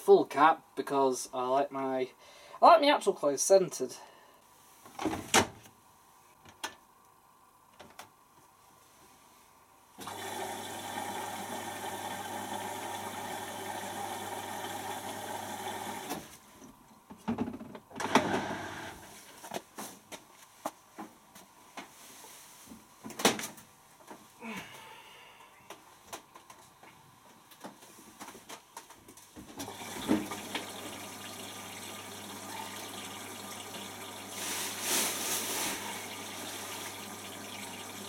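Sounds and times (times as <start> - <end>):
water rushing into washing machine: 10.0 - 16.3, 29.6 - 38.0.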